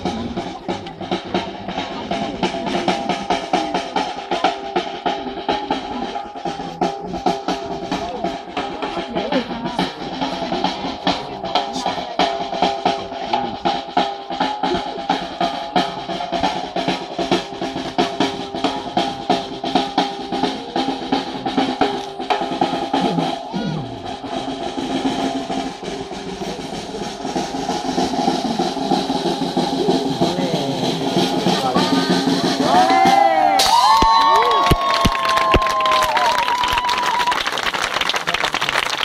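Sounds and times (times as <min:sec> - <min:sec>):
snare drum rolls: 0:00.0 - 0:39.0.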